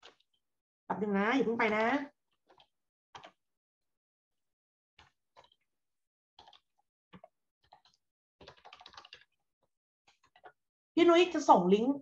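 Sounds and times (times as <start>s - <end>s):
computer keys and mouse clicking: 2.5s - 3.4s, 6.4s - 9.4s.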